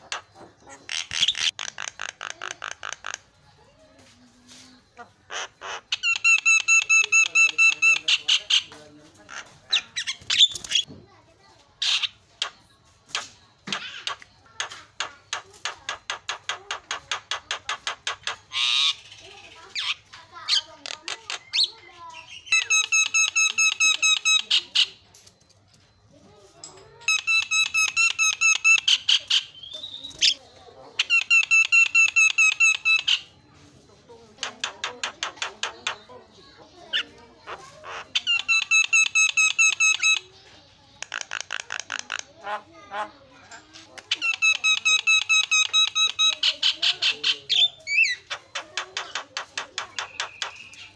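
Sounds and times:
bird harsh squawk: 0.0 - 3.2, 16.0 - 25.0
bird calling harsh notes: 0.0 - 3.3, 5.0 - 10.9, 11.8 - 25.2, 27.0 - 30.4, 31.0 - 33.4, 36.9 - 40.4, 44.0 - 49.1.

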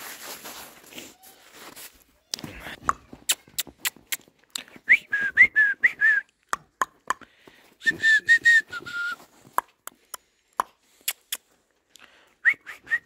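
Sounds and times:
boots crunching in snow: 0.0 - 2.8
person whistling short notes: 4.7 - 6.4, 7.8 - 9.4, 12.4 - 13.0.

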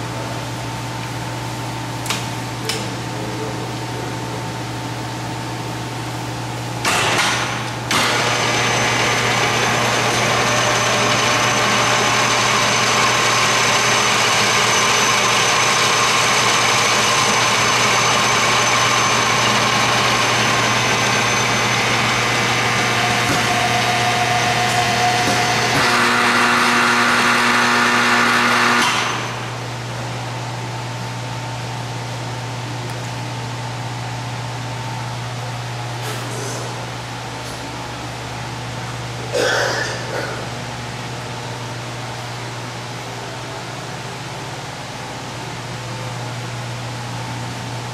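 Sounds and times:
lathe spindle drive running: 6.8 - 29.8.

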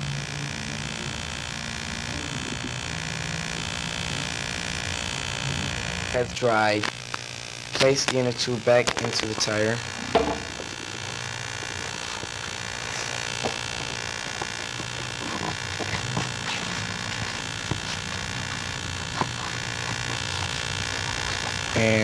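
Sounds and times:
electrical hum: 0.0 - 22.0
inner tube rubbing and ticking: 5.9 - 22.0.

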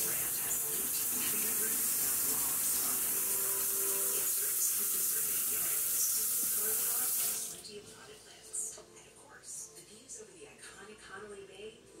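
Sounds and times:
faucet water running into sink: 0.0 - 7.6.

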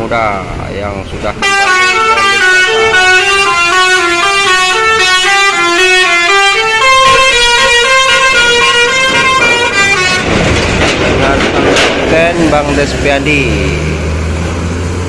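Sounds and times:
bus horn playing quick tune: 1.4 - 10.3.

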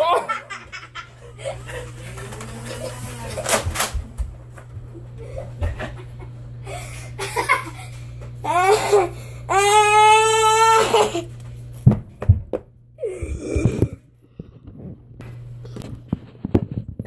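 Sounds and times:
boy laughing: 0.0 - 3.4, 4.9 - 11.3
boy squealing: 8.5 - 11.3.

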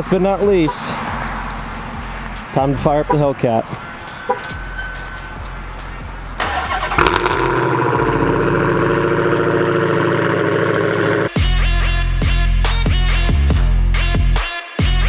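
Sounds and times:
car engine starting and idling: 0.0 - 11.4.

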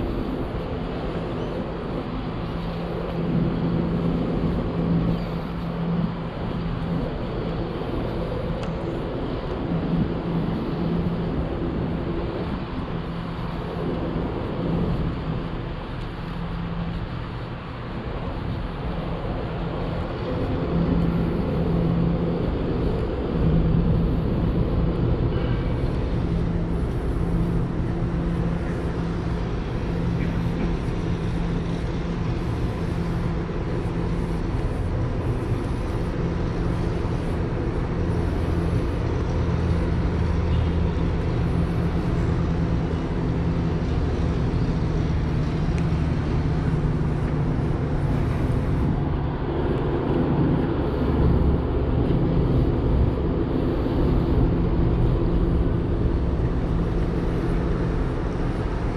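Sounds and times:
city background noise: 0.0 - 58.9
low machinery hum: 0.0 - 58.9.

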